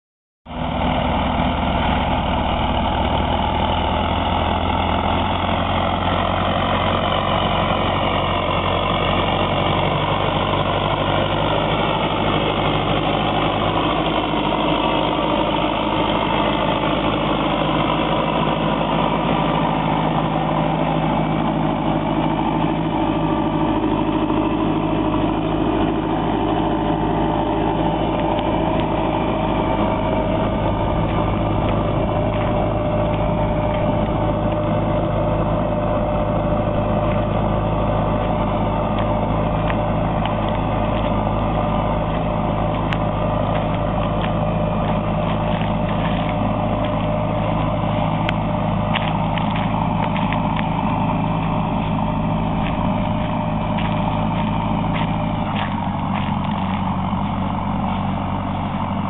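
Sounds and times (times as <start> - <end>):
tractor diesel engine under load: 0.4 - 59.0.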